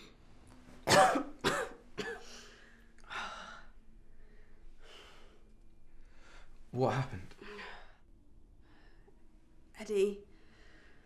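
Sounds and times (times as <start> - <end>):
woman coughing: 0.9 - 2.3.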